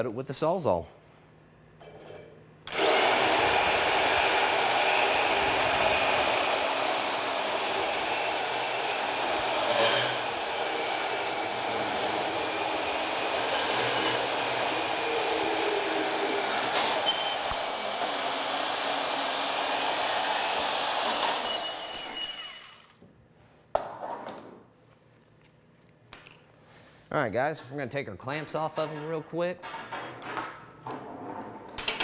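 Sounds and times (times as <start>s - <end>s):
bandsaw cutting steel: 2.7s - 22.9s.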